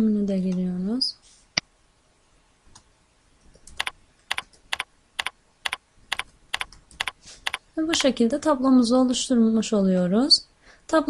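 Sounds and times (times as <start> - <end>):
keyboard keystrokes: 3.6 - 8.1.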